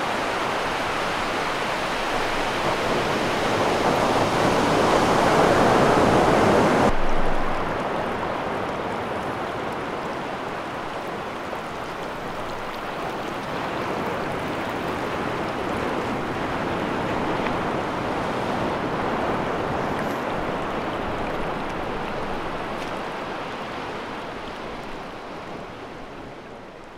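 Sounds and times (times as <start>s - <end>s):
ocean surf on sandy beach: 0.0s - 26.9s.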